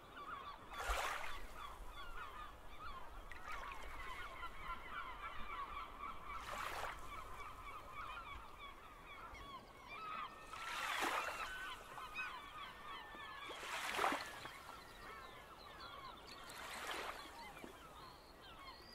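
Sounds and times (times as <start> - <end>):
flock of birds chattering: 0.0 - 18.9
small waves washing ashore: 0.6 - 8.0, 10.4 - 12.6, 13.4 - 14.7.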